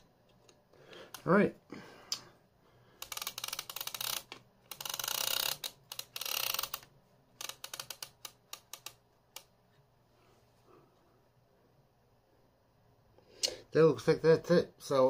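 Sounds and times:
plastic reel ratcheting clicks: 0:03.0 - 0:09.5.

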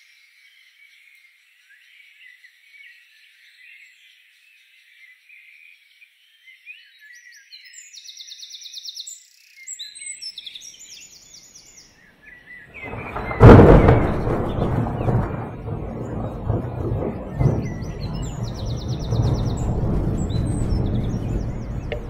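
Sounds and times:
birds chirping: 0:00.0 - 0:22.0
high bird trills: 0:11.0 - 0:15.4
thunderclap rumbling: 0:12.8 - 0:22.0.

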